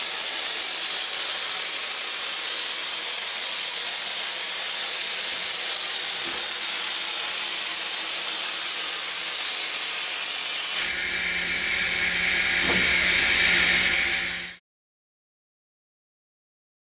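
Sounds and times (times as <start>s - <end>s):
loud high machine hiss: 0.0s - 14.6s
rising whine of milling head: 0.0s - 14.6s
low machine hum: 10.9s - 14.6s.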